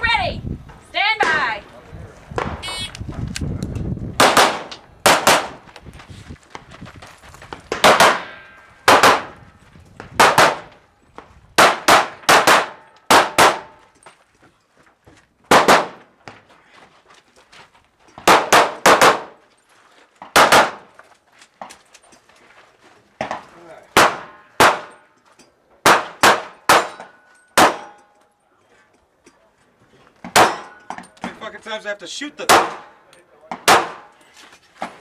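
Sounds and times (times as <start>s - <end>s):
handgun shots: 4.2s - 5.6s, 7.7s - 9.4s, 10.2s - 10.7s, 11.6s - 13.8s, 15.5s - 16.0s, 18.2s - 19.4s, 20.3s - 20.8s, 24.0s - 25.0s, 25.8s - 28.1s, 33.6s - 34.1s
steel targets ringing: 30.4s - 31.0s.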